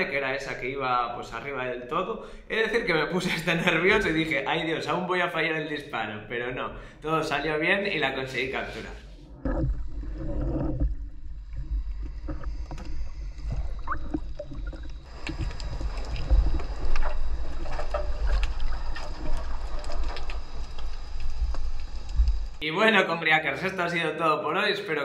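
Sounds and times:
underwater rumble of moving water: 7.6 - 22.6
underwater clicks and crackles: 9.2 - 22.6.

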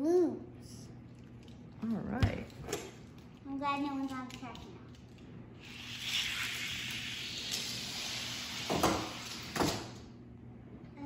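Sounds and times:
toy cars rattling down plastic track: 5.7 - 9.9.

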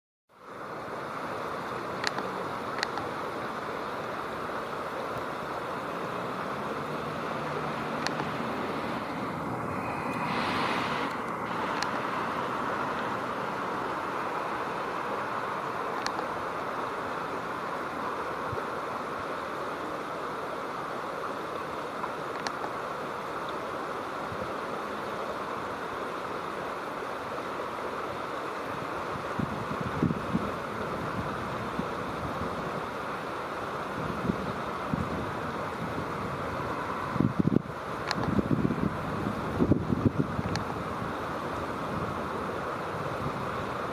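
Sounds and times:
river water rushing: 0.3 - 43.9
faint click: 2.0 - 3.1, 16.0 - 16.3, 38.0 - 38.4, 40.4 - 40.7.

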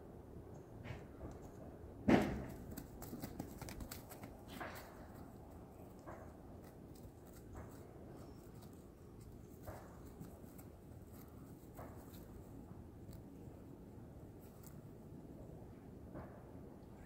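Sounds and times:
faint background noise: 0.0 - 17.0
horse cropping grass: 2.1 - 13.2.

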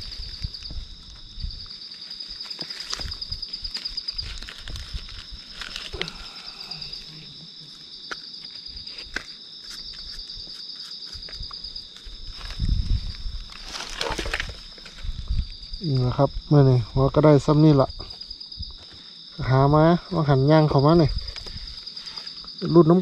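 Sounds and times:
footsteps on dry leaves: 0.0 - 6.0
insects trilling: 0.0 - 23.0.

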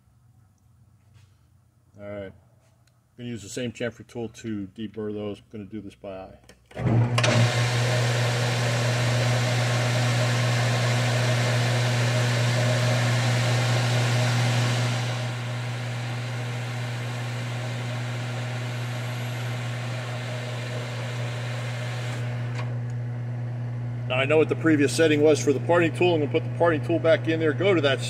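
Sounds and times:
lathe motor hum: 6.8 - 28.0.

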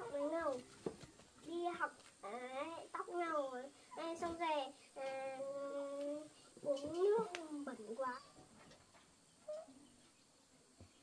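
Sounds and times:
faint bird call: 9.4 - 10.2.

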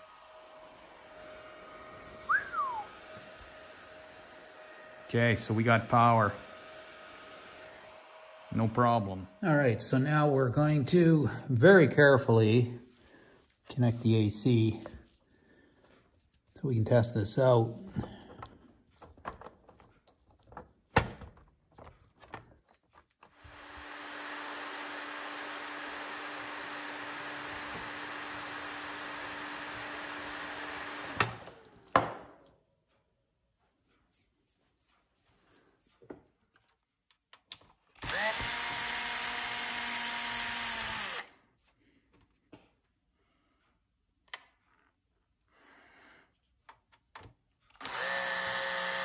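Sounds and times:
cordless drill motor spinning: 0.0 - 9.4, 23.2 - 31.8, 38.0 - 41.4, 47.7 - 49.0.

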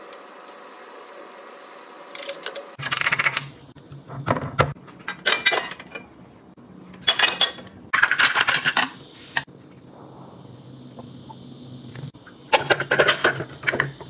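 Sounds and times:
faint hum: 0.0 - 14.0
glass bottles clinking: 5.1 - 6.1, 7.0 - 8.7.

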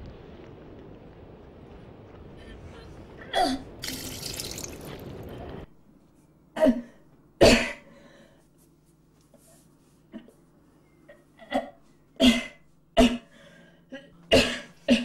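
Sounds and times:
person coughing: 6.6 - 7.9, 11.4 - 13.3, 14.0 - 15.0.

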